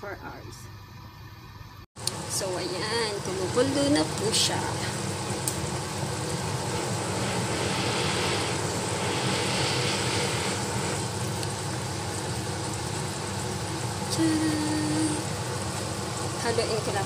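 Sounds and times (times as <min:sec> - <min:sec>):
soup bubbling at a boil: 0:03.4 - 0:16.5.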